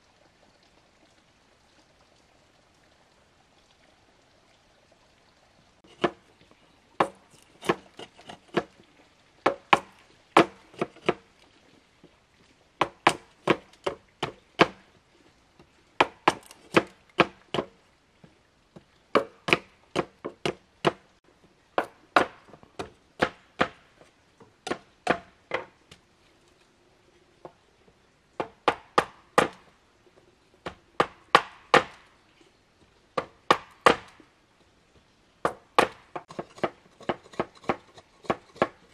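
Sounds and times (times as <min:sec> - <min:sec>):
knife chopping on wooden board: 0:07.0 - 0:08.7.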